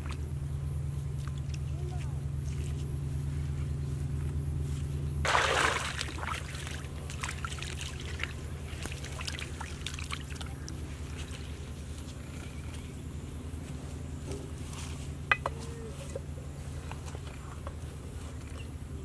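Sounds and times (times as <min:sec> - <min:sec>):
steady low hum: 0:00.0 - 0:19.0
muddy water splashing: 0:05.2 - 0:12.4
water trickling: 0:05.3 - 0:10.8.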